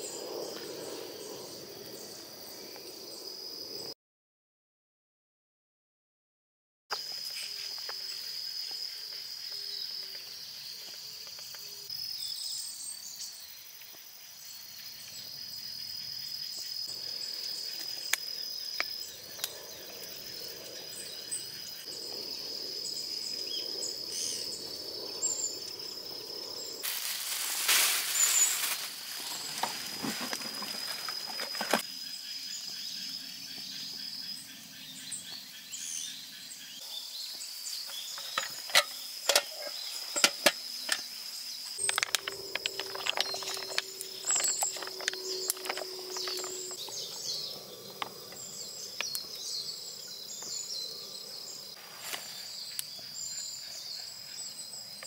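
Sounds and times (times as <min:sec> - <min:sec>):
insects trilling: 0:00.0 - 0:04.0, 0:06.9 - 0:55.0
rustling: 0:26.8 - 0:31.8.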